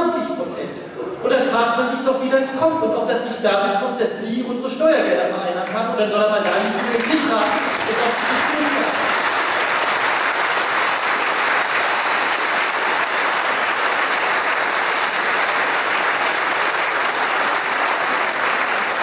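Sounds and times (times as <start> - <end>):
audience applauding: 6.4 - 19.0.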